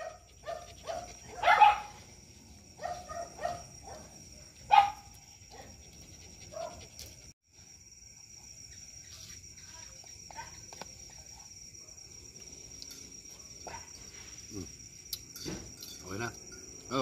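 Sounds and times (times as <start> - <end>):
small dog barking: 0.0 - 2.1, 2.8 - 5.8, 6.5 - 6.9, 10.3 - 10.6, 13.3 - 14.0.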